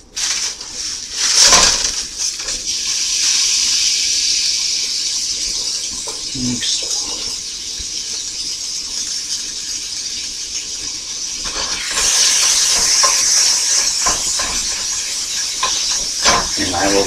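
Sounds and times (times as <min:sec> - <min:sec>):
meat sizzling in a skillet: 0:00.0 - 0:17.0
spatula scraping a pan: 0:11.4 - 0:17.0.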